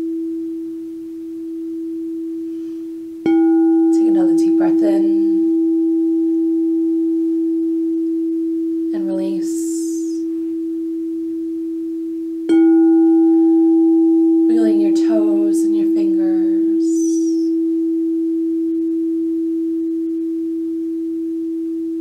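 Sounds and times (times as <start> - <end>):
singing bowl ringing: 0.0 - 22.0
mallet striking bowl: 12.5 - 15.3.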